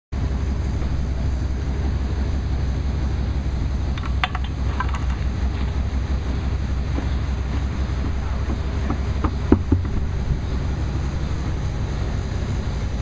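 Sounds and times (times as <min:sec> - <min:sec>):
steady low rumble: 0:00.1 - 0:13.0.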